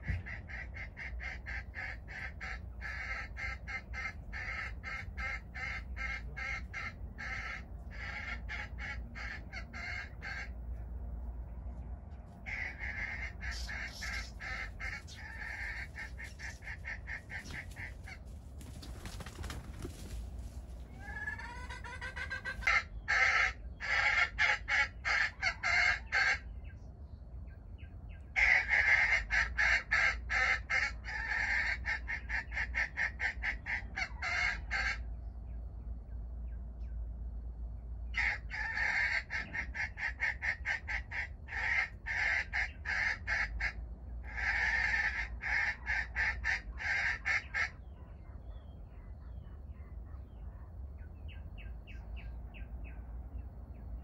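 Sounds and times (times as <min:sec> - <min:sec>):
junglefowl rapid clucking: 0:00.0 - 0:10.6, 0:12.4 - 0:26.5, 0:28.3 - 0:35.1, 0:38.1 - 0:53.0.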